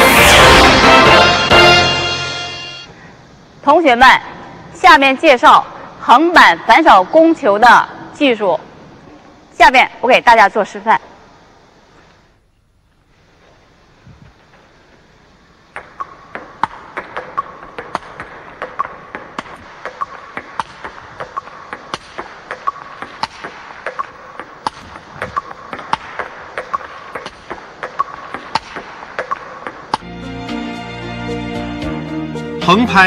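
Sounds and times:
ping-pong ball hits: 15.8s - 30.1s.

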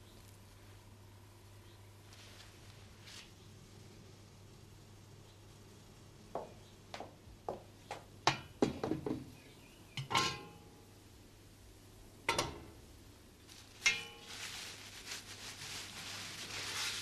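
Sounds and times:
pots and pans knocking and clinking: 8.3s - 9.2s, 10.0s - 10.6s.

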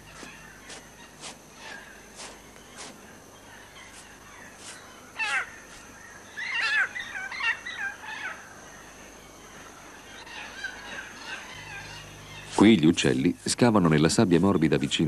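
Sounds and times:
megapode calls: 3.5s - 8.4s.

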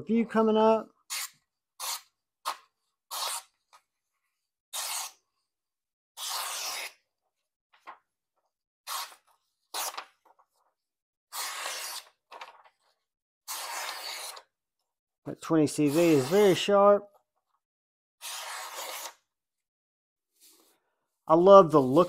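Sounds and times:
knife slicing paper: 1.1s - 3.6s, 4.7s - 5.2s, 6.2s - 7.0s, 8.9s - 10.2s, 11.3s - 12.2s, 13.5s - 14.5s, 15.8s - 16.7s, 18.2s - 19.3s.

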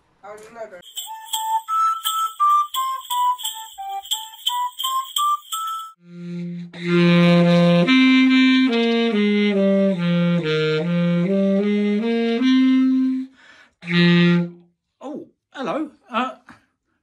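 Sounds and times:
clarinet playing slow tune: 6.0s - 14.7s.

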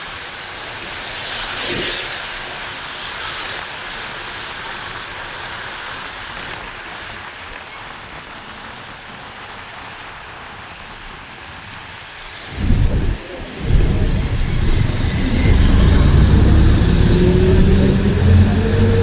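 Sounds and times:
moving bus rumble: 12.5s - 19.0s.

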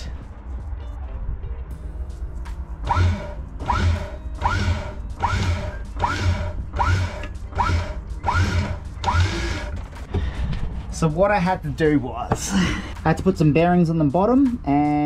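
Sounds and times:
electric winch hauling rope: 2.8s - 9.9s
winch squeak and low knock: 2.9s - 10.0s.

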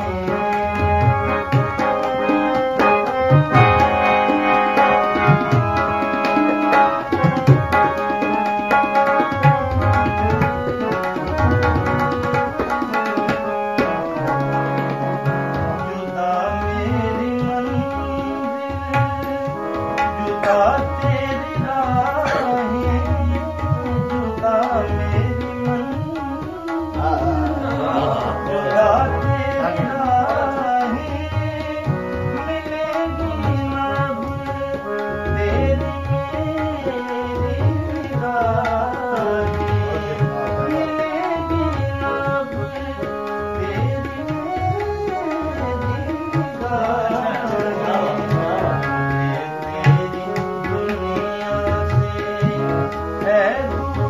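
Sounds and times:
harmonium chords: 0.0s - 54.0s
tabla beat: 0.0s - 54.0s
man singing: 14.2s - 54.0s.

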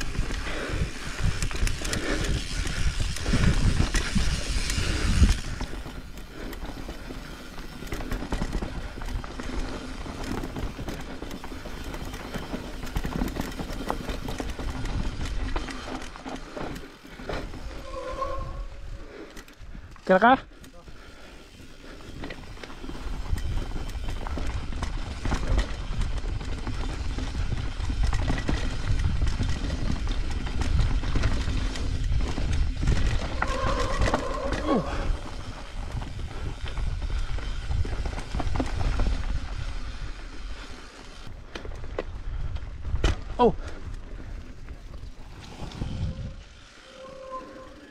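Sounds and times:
wind rumble on microphone: 0.0s - 6.2s, 22.9s - 40.4s, 41.7s - 47.9s
bike rattling clicks and knocks: 0.0s - 17.7s, 19.3s - 46.6s
bike tyres rolling on dirt: 0.0s - 47.9s.

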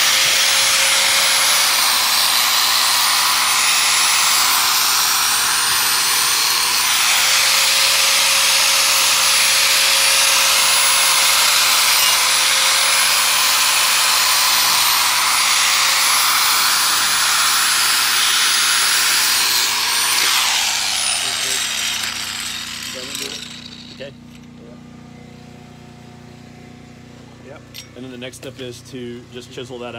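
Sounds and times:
angle grinder cutting block: 0.0s - 24.6s.

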